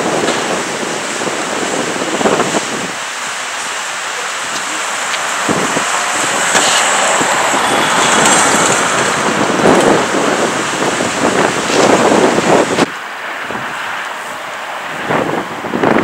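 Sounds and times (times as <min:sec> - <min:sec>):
wind buffeting microphone: 0:00.0 - 0:16.0
car driving past: 0:04.6 - 0:11.8.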